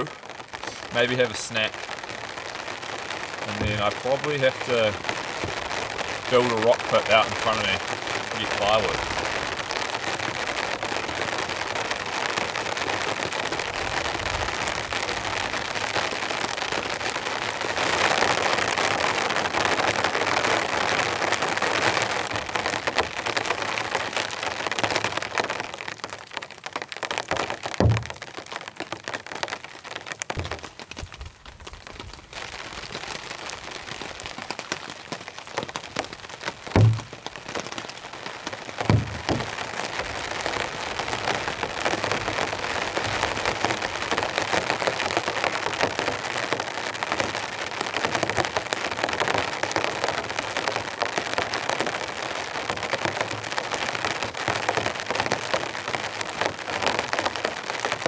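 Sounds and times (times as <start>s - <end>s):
heavy rain on a tarp: 0.0s - 58.0s
dull thumps: 3.5s - 4.0s, 27.8s - 28.4s, 30.4s - 31.3s, 36.7s - 37.4s, 38.8s - 39.7s.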